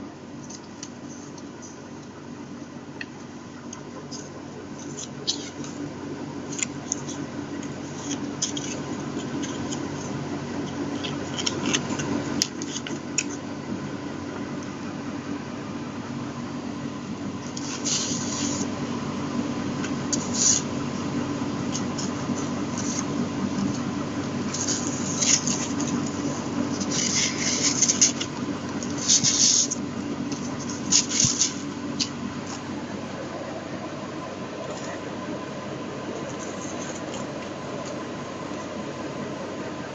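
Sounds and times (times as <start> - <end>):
steady background hum: 0.0 - 39.9
paper and card rustling: 4.0 - 13.5, 17.4 - 18.8, 19.8 - 32.8, 36.1 - 38.7.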